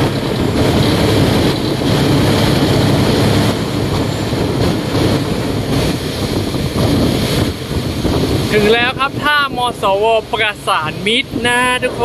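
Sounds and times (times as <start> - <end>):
boat diesel engine running: 0.0 - 12.0
water rushing past hull: 0.0 - 12.0.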